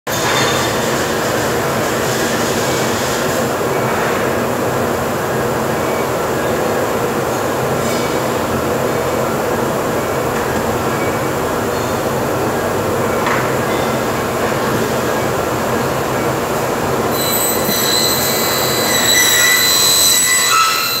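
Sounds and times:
saw machine running: 16.2 - 21.0.

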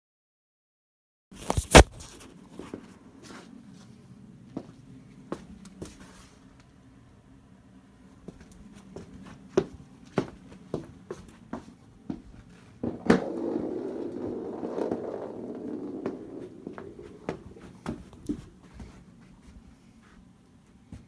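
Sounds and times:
rumbling scrape: 12.9 - 17.9.

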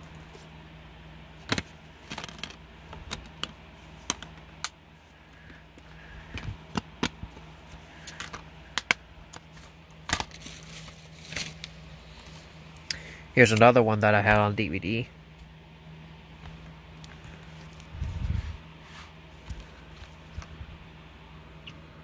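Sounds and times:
plastic case clicking and rattling: 1.5 - 4.3.

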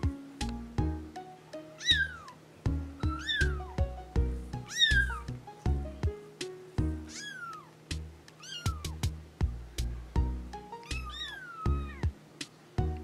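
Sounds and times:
background music of plucked notes: 0.0 - 13.0
kittens meowing: 1.8 - 2.4, 3.0 - 3.8, 4.7 - 5.3, 7.1 - 7.8, 8.4 - 9.0, 10.8 - 12.1.

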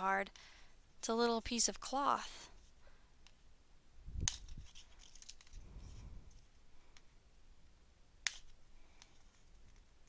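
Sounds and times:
clicks and bumps handling card: 4.3 - 7.1.

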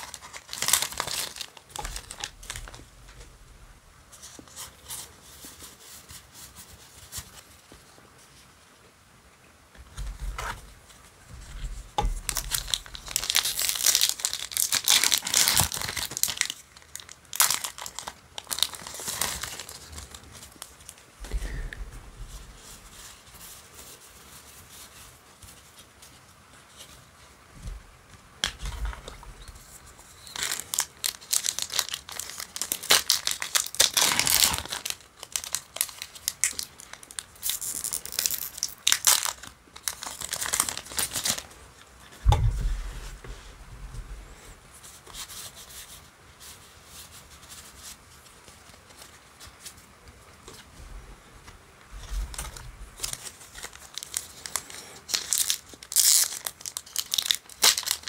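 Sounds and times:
foil wrappers crinkling and tearing: 0.0 - 2.9, 12.0 - 21.6, 28.4 - 41.6, 52.0 - 58.0
dull thumps: 42.2 - 44.4.

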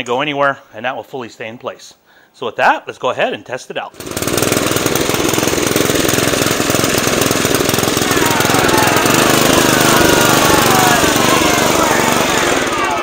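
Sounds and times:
high engine whine: 4.0 - 13.0
lawn mower engine running rough: 4.0 - 13.0.

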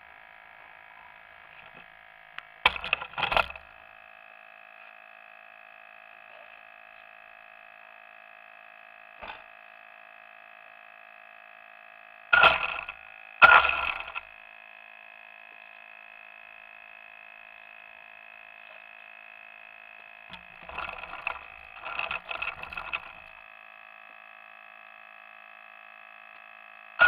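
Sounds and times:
thin electronic whine: 0.0 - 27.0
short crackling rattles: 2.6 - 3.7, 20.3 - 23.4.

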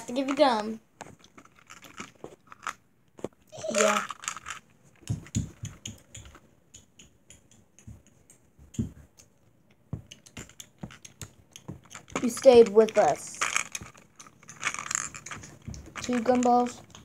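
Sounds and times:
plastic toys clicking on wooden table: 3.6 - 9.3, 10.0 - 17.0.

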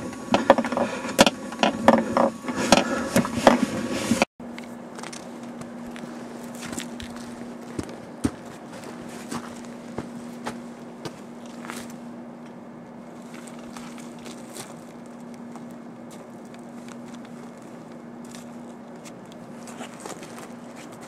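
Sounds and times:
steady hum: 0.0 - 21.0
footsteps on gravel: 4.5 - 12.1, 13.0 - 21.0.

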